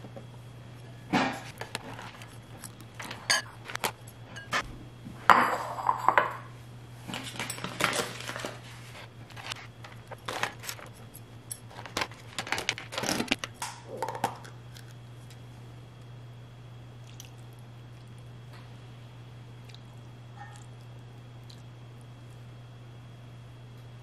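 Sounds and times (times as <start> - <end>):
rustle of noodles and foil: 7.1 - 13.5.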